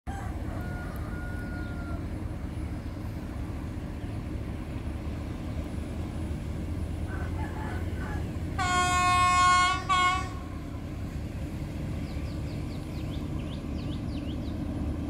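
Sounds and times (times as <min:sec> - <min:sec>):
diesel railcar rumbling: 0:00.1 - 0:15.0.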